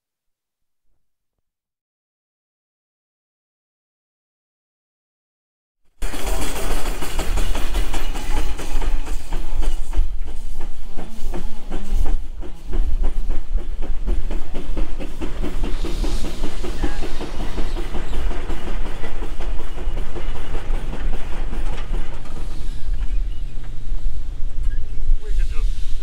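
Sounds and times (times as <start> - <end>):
steam engine clattering: 6.0 - 26.0
steam hiss: 6.0 - 26.0.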